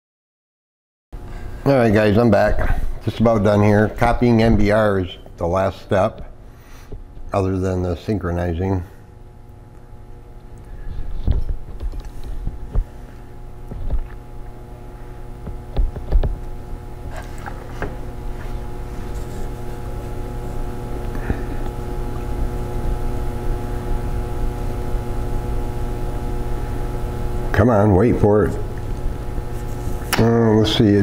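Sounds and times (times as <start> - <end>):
steady low hum: 1.2 - 31.0
low thumps and clicks: 15.4 - 16.5.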